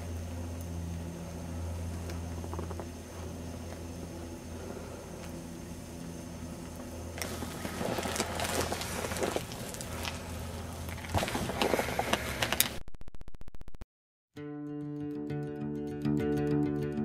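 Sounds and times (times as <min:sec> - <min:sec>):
steady low hum: 0:00.0 - 0:12.8.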